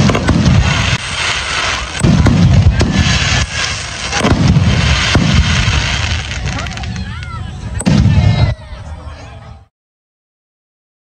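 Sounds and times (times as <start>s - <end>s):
firework shells booming: 0.0s - 7.0s
firework crackling: 0.0s - 8.5s.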